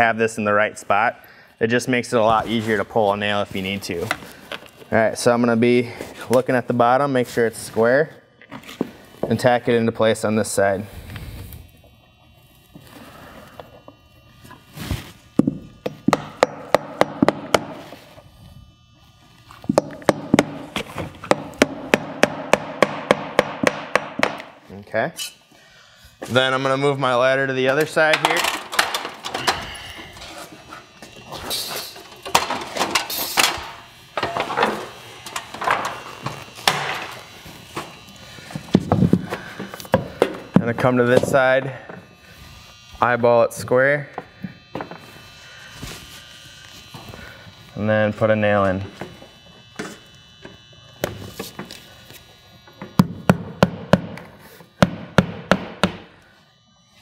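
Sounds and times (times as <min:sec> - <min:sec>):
hammer striking a nail: 0:15.4 - 0:17.8, 0:19.7 - 0:20.6, 0:21.3 - 0:24.5, 0:52.9 - 0:56.1
footsteps: 0:33.5 - 0:43.0, 0:43.6 - 0:47.8.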